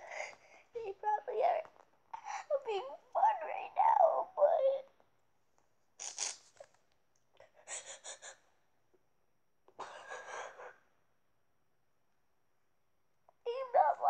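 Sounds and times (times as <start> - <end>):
girl sniffling and gasping: 0.0 - 0.7, 7.4 - 8.6, 9.8 - 10.8.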